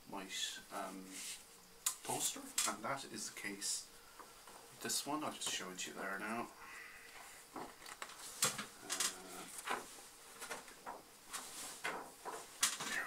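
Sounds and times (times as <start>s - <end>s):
paper rustling and crinkling: 7.5s - 13.0s.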